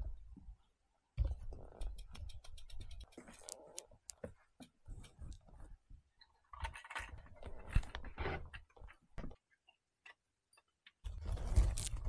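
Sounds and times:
quick ticks: 1.7s - 3.9s
rustling: 11.1s - 12.0s.

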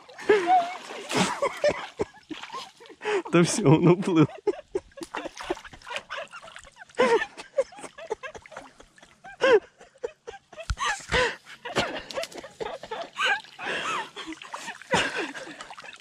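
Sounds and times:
water sloshing from wading: 0.0s - 3.6s, 4.8s - 9.3s, 11.4s - 16.0s
stick splashing in water: 0.6s - 2.8s.

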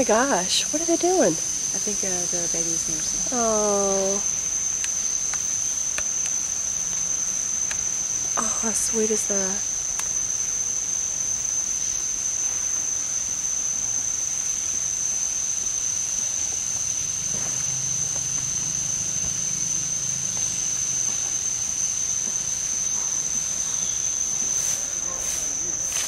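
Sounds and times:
faint hiss: 0.0s - 26.0s
insects droning: 0.0s - 26.0s.

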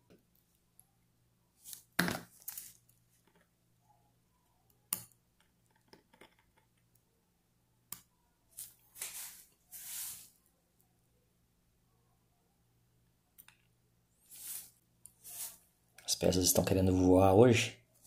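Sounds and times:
short hissing rustling noises: 8.6s - 10.4s, 14.3s - 15.6s.

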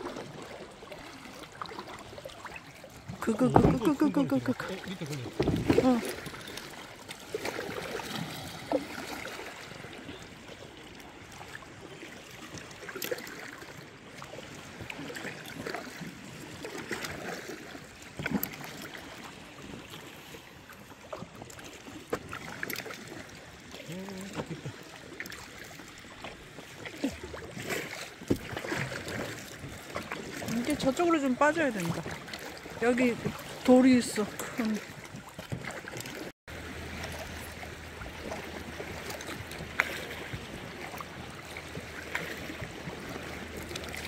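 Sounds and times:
paddle splashes and drips: 0.0s - 44.0s
water lapping around kayak: 0.0s - 44.0s.

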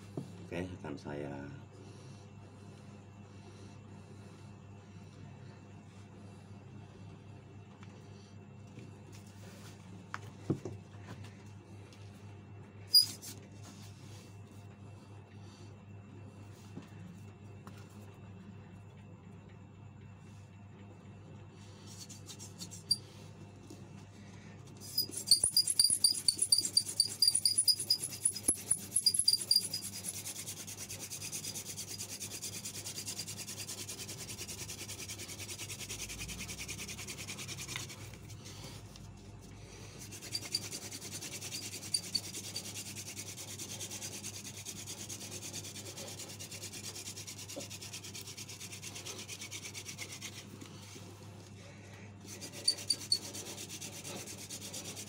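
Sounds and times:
high squeaking: 24.8s - 30.0s
wooden drill rubbing: 24.8s - 34.0s, 52.3s - 55.0s.

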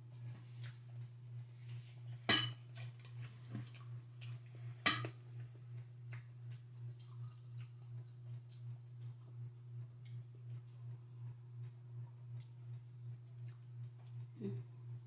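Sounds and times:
pulsing low hum: 0.0s - 15.0s
small clicks of eating: 0.3s - 1.1s, 2.8s - 15.0s
tableware clinking: 2.3s - 2.6s.

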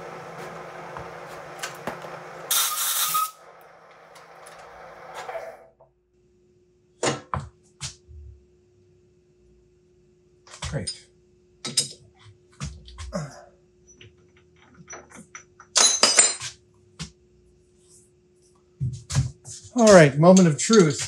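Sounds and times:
metal lathe running: 0.0s - 5.6s.

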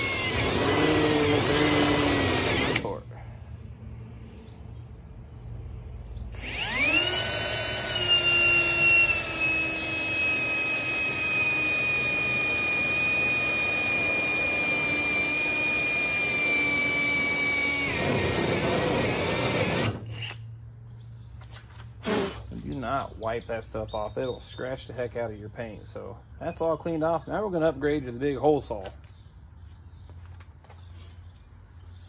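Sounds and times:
cordless drill boring sheet metal: 0.0s - 2.9s, 6.4s - 20.4s.

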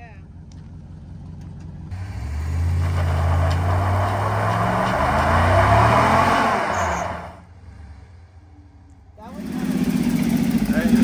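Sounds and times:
truck engine revving: 1.8s - 8.4s, 9.2s - 11.0s.

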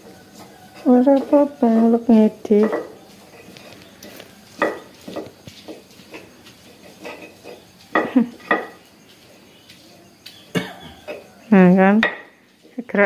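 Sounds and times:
metal utensil clinking on pan: 0.4s - 3.6s.

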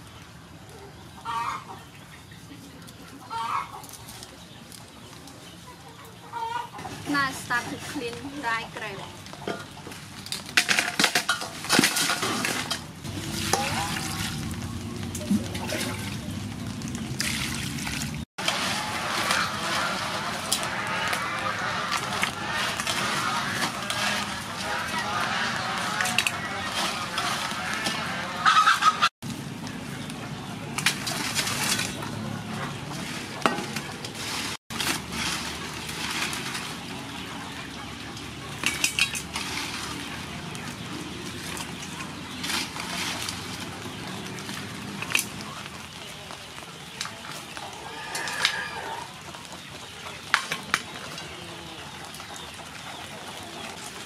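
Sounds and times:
water sloshing in a metal basin: 10.7s - 21.3s, 21.9s - 28.0s, 30.7s - 45.5s
water sloshing in basin: 11.8s - 21.2s.

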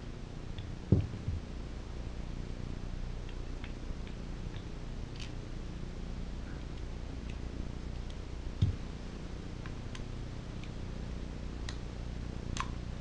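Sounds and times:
steady low hum: 0.0s - 13.0s
soft thump: 0.9s - 1.4s.

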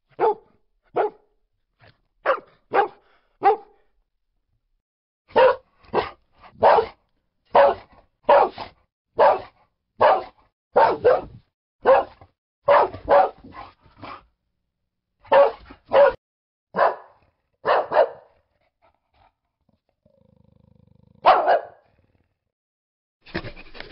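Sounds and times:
dog barking: 0.0s - 1.3s, 2.2s - 3.9s, 5.3s - 14.2s, 15.2s - 18.4s, 21.2s - 21.9s.

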